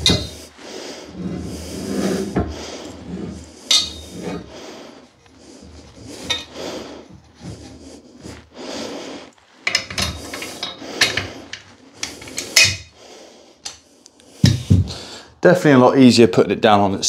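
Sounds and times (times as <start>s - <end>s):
metal scraping and rubbing: 0.0s - 13.0s.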